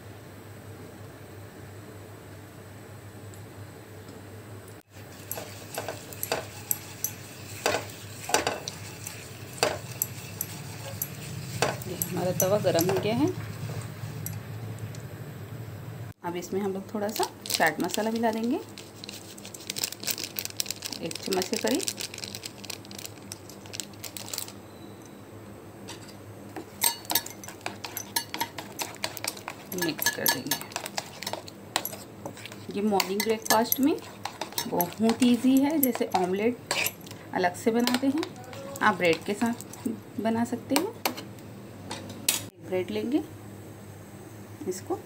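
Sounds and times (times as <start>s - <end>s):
oil sizzling: 4.8s - 15.0s, 17.1s - 24.6s, 25.8s - 40.4s
spoon scraping a pan: 4.9s - 14.4s, 25.9s - 37.2s, 37.8s - 40.0s
spoon clinking against bowl: 26.8s - 37.1s.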